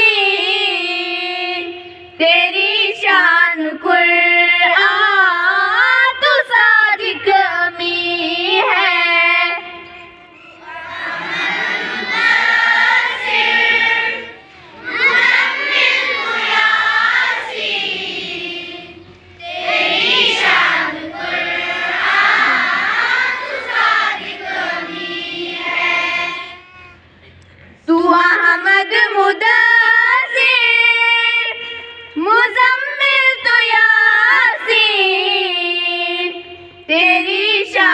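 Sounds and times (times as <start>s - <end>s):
children singing in unison: 0.0s - 27.0s.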